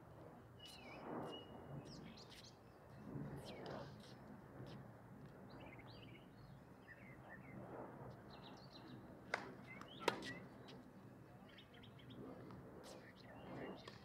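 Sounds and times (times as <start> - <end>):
small birds chirping: 0.6 - 4.2.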